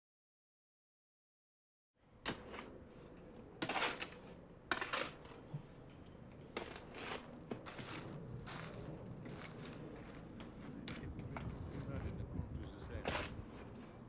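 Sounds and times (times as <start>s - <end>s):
shovel scraping sand in wheelbarrow: 2.3s - 2.8s, 3.6s - 5.5s, 6.5s - 10.3s, 13.0s - 14.0s.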